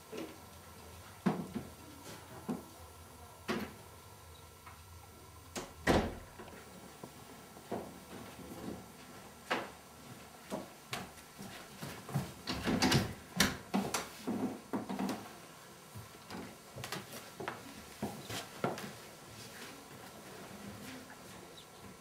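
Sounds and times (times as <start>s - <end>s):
panelled door being opened: 5.6s - 6.4s, 12.4s - 13.6s
knocks and clatter of people moving: 5.6s - 19.1s.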